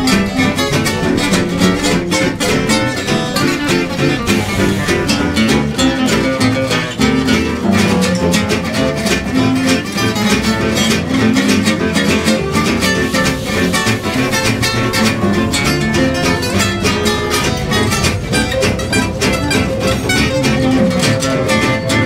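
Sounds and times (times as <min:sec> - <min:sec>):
acoustic guitars strumming: 0:00.0 - 0:22.0
clarinet: 0:00.0 - 0:22.0
double bass: 0:00.0 - 0:22.0.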